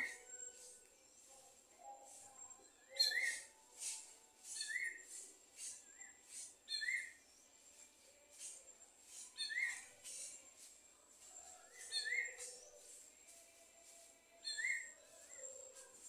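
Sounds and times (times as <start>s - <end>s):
bird whistled phrase: 2.9s - 3.5s.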